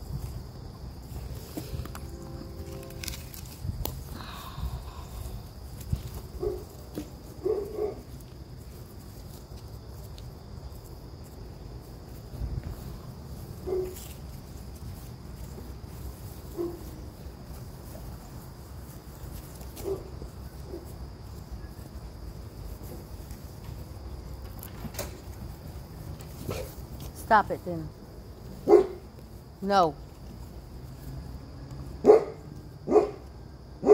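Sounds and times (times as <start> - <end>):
high insect drone: 0.0 - 33.9.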